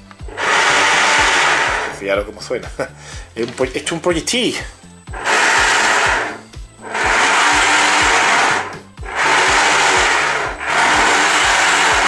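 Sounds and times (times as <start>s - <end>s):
electric propeller motors running: 0.1s - 2.1s, 5.1s - 12.0s.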